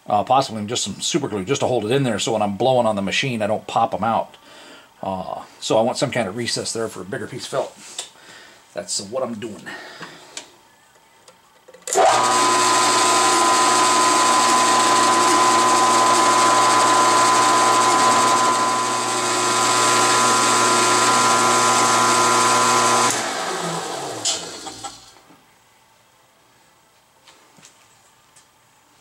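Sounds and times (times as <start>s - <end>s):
milling machine whine: 11.9s - 25.2s.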